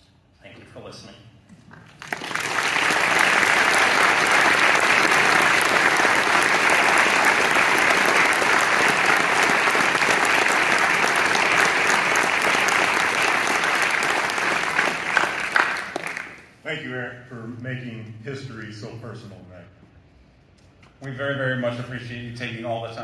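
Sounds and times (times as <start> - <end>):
audience applauding: 1.9 - 16.6.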